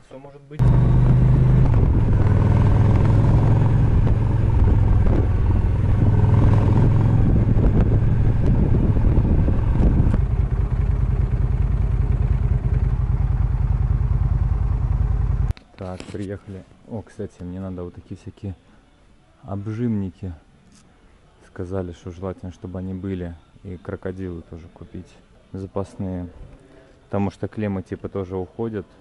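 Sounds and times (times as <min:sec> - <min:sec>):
motorcycle engine running: 0:00.6 - 0:15.5
wind and road rush: 0:00.6 - 0:15.5.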